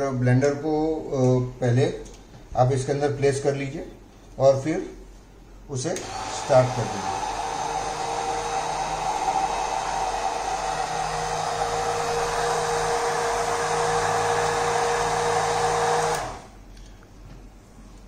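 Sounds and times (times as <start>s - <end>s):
hand blender whirring: 6.0s - 16.6s.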